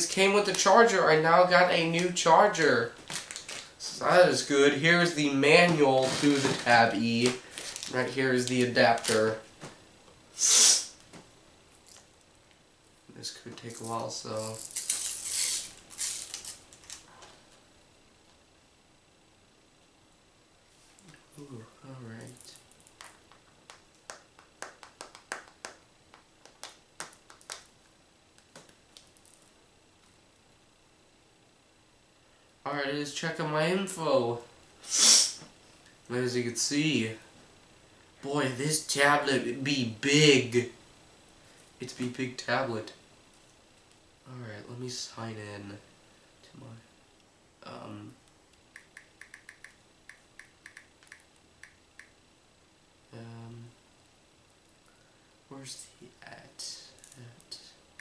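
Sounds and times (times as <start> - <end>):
fingertips tapping on touchscreen: 48.8 - 52.2.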